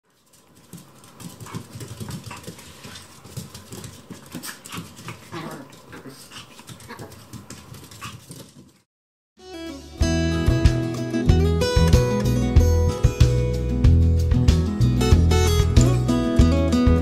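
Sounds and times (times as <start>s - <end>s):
dogs scuffling: 0.0s - 8.9s
claws ticking on hard floor: 0.1s - 8.8s
dog vocal sounds: 1.2s - 8.5s.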